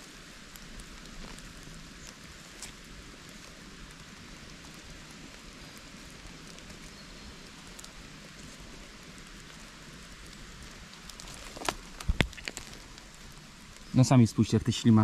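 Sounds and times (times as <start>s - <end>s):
rain pattering in forest: 0.0s - 15.0s
twigs clicking: 0.4s - 14.0s.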